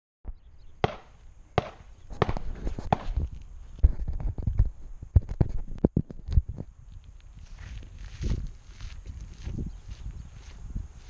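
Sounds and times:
footsteps crunching on gravel: 6.9 - 11.0.

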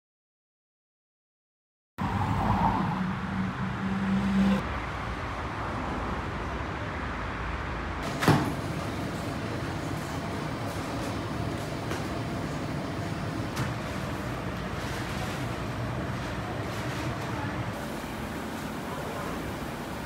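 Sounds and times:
cars passing: 2.0 - 20.0.

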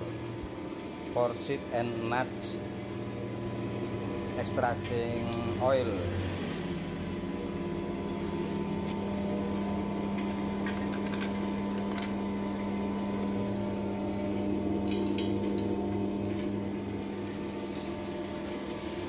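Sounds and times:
oil expeller motor humming: 0.0 - 19.0.

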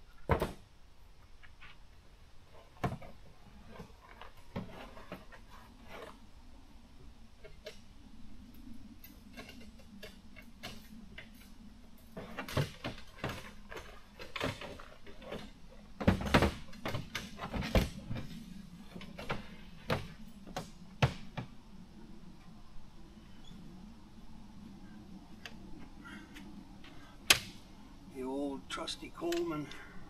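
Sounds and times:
camping gear clicking and clattering: 2.5 - 6.3, 8.9 - 21.5.

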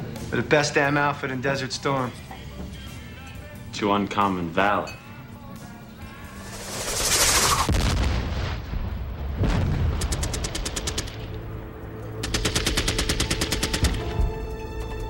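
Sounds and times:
automatic gunfire bursts: 12.2 - 14.0.

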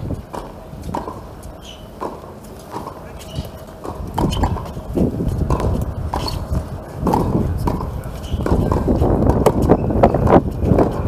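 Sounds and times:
tennis ball bounces: 0.1 - 10.2
tennis racket strikes: 0.3 - 4.8, 5.5 - 6.4.

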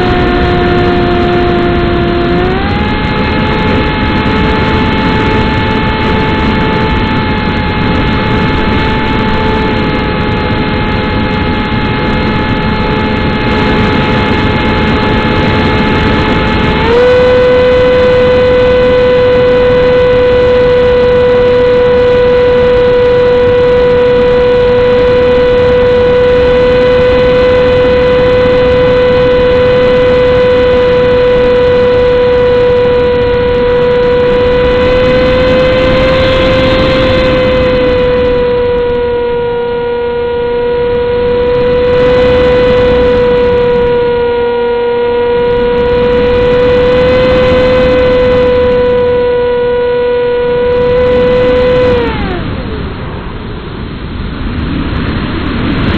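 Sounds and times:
model airplane motor whine: 0.0 - 53.7.

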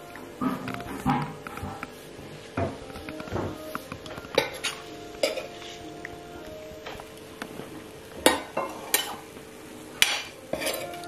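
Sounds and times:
metal spoon scraping a skillet: 4.3 - 5.9, 8.3 - 9.2, 10.0 - 11.0.

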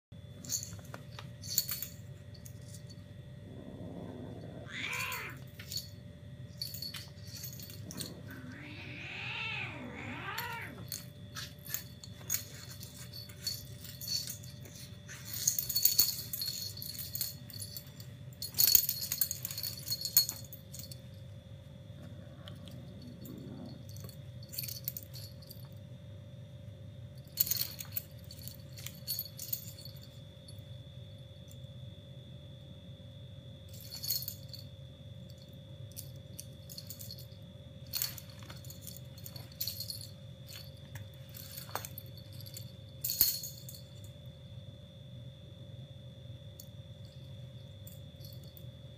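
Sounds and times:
kittens growling yowls: 3.5 - 5.5, 7.9 - 11.0.

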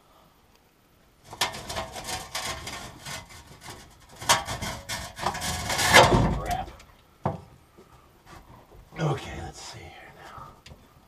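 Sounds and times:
parts scraping and rubbing: 1.3 - 6.9
small knocks: 1.3 - 8.8.

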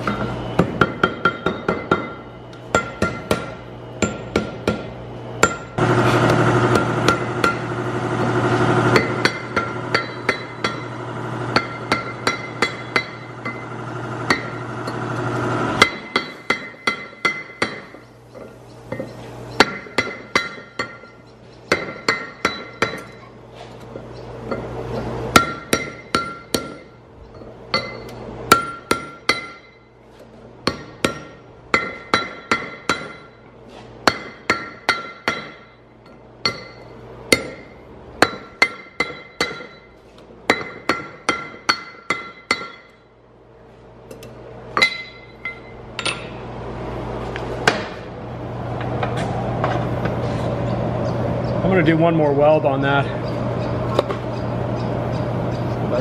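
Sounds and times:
hammer striking metal ring: 0.0 - 5.8, 6.7 - 7.7, 8.9 - 15.1, 15.8 - 23.3, 25.3 - 30.0, 30.6 - 43.1, 44.1 - 46.4.

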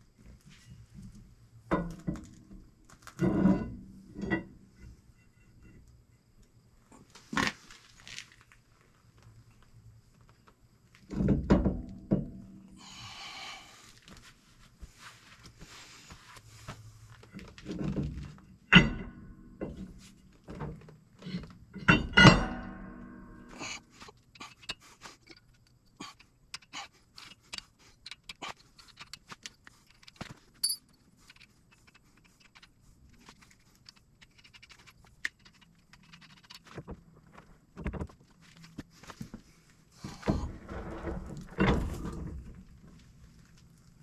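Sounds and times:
metal clanks: 18.7 - 20.0, 20.6 - 23.8
metallic ringing: 30.6 - 30.8.

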